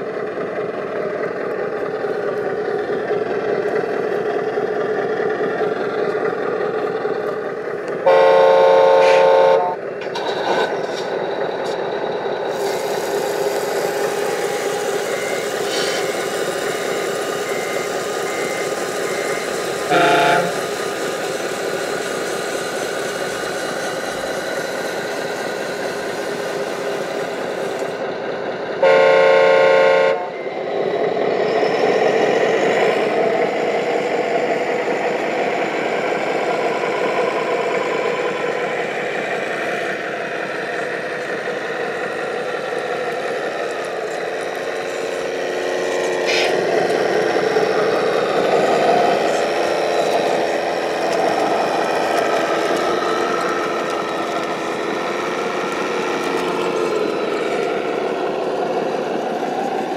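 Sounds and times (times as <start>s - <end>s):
truck engine sound running: 0.0s - 59.9s
truck horn blast: 8.0s - 9.8s, 19.9s - 20.7s, 28.8s - 30.4s.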